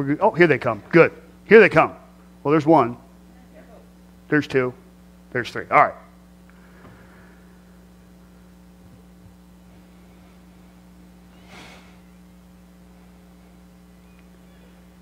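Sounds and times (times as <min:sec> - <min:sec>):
steady electrical hum: 0:00.0 - 0:15.0
faint breathy noise: 0:06.5 - 0:08.5, 0:09.6 - 0:12.2.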